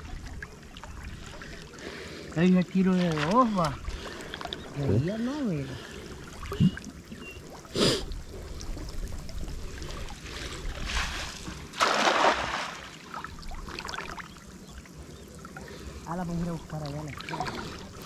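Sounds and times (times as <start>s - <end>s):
splashing in shallow water: 0.0s - 18.0s.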